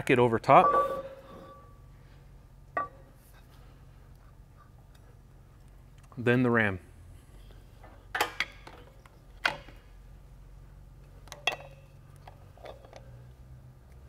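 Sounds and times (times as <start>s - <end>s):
metal clinks and knocks: 11.2s - 13.1s.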